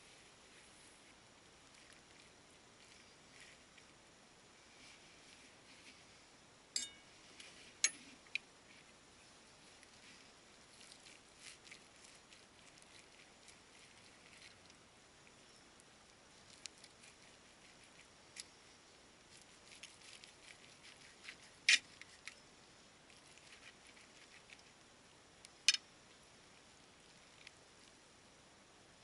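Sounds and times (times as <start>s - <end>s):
metal clinks: 6.8s - 7.1s.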